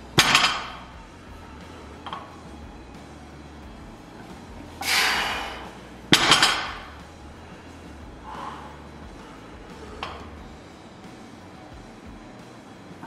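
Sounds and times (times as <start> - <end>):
weight plates clanking: 0.0 - 2.4, 4.2 - 10.4.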